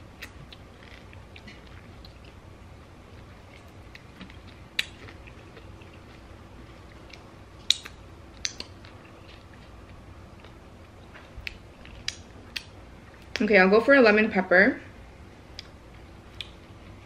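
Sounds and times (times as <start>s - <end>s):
quiet chewing: 0.2s - 2.4s, 3.0s - 13.4s, 15.5s - 17.0s.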